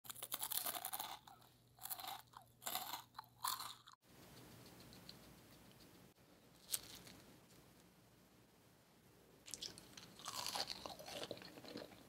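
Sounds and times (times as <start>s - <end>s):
crunchy chewing: 0.0s - 6.0s, 6.6s - 7.2s, 9.5s - 12.0s.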